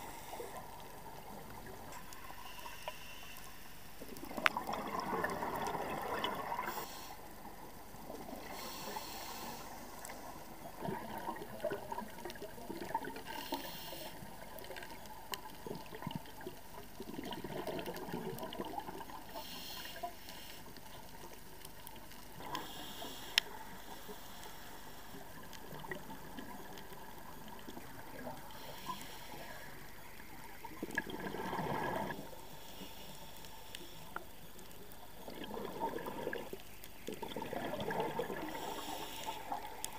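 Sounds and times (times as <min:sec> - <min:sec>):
hissing breaths through regulator: 0:00.0 - 0:00.9, 0:02.3 - 0:03.9, 0:06.6 - 0:07.4, 0:08.4 - 0:10.5, 0:13.2 - 0:14.4, 0:19.2 - 0:20.8, 0:22.4 - 0:25.3, 0:28.5 - 0:29.9, 0:31.4 - 0:34.2, 0:38.3 - 0:39.9
steady underwater hiss: 0:00.0 - 0:39.9
bubbles gurgling underwater: 0:04.1 - 0:06.8, 0:10.6 - 0:13.2, 0:15.6 - 0:19.3, 0:30.4 - 0:32.2, 0:35.0 - 0:39.9.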